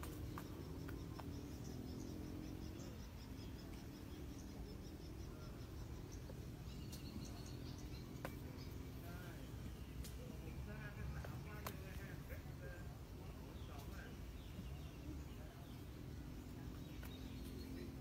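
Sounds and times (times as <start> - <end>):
insects chirping: 0.0 - 18.0
low steady hum: 0.0 - 18.0
faint clicks: 10.0 - 10.3.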